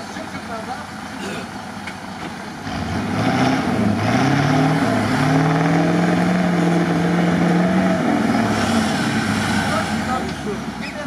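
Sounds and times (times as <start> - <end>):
engine revving hard: 2.6 - 10.6.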